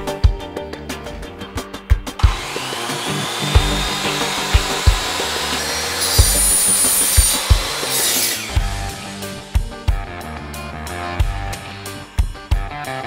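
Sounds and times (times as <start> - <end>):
background music with beat: 0.0 - 13.0
mitre saw motor whine: 2.2 - 9.5.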